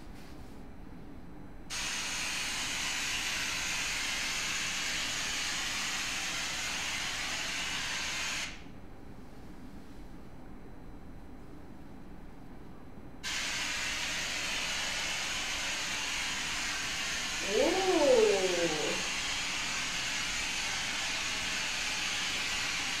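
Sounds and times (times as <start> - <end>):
faint low room hum: 0.0 - 1.7, 8.6 - 13.3, 17.3 - 19.2.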